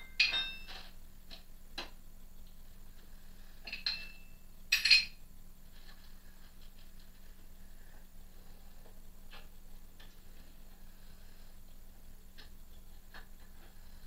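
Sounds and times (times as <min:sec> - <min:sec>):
metal tools clinking on metal: 0:00.0 - 0:00.9, 0:03.7 - 0:05.2
faint steady hum: 0:00.0 - 0:14.0.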